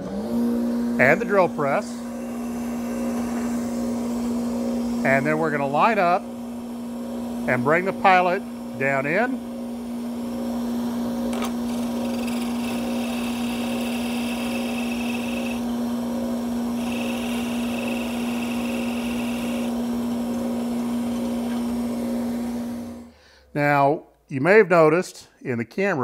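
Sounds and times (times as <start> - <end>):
drill press humming: 1.0 - 23.1
pen mill cutting wood: 11.3 - 15.7, 16.7 - 22.0.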